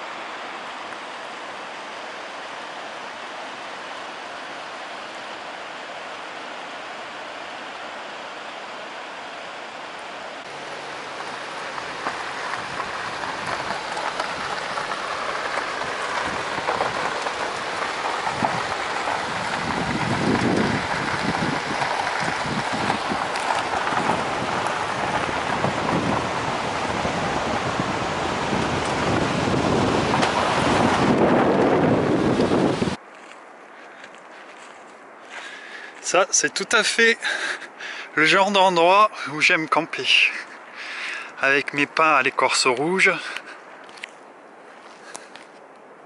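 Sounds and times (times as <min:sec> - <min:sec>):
tyres on gravel road: 0:00.0 - 0:46.0
wind buffeting microphone: 0:10.5 - 0:33.0.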